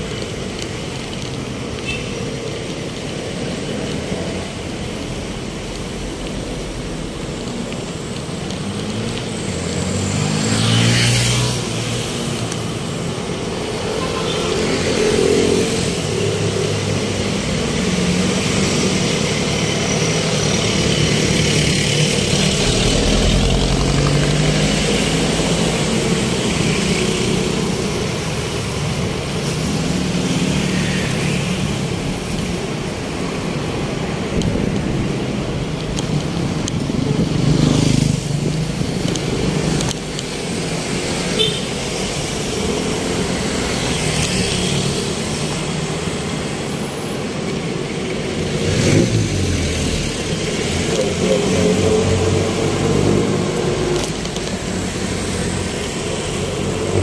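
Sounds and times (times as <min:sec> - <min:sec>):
vehicle engines running: 0:02.4 - 0:57.0
vehicle passing by: 0:09.6 - 0:12.4.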